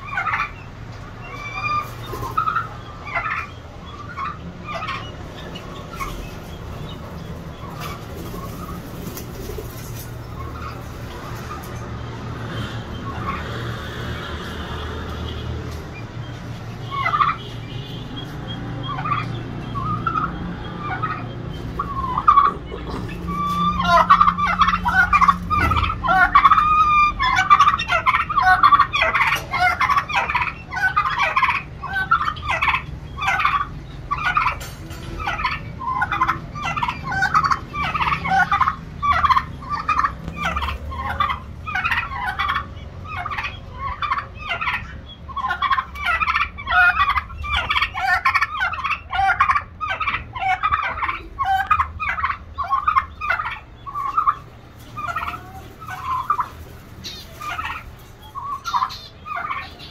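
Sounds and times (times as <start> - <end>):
turkeys gobbling: 0.0 - 59.9.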